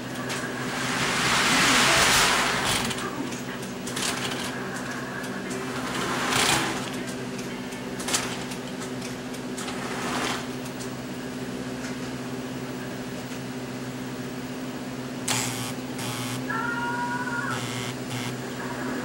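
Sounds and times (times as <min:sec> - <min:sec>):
noisy burst: 0:00.0 - 0:03.2, 0:15.3 - 0:16.5, 0:17.5 - 0:18.7
toy train electric hum: 0:00.0 - 0:19.0
rush of noise: 0:00.5 - 0:03.0.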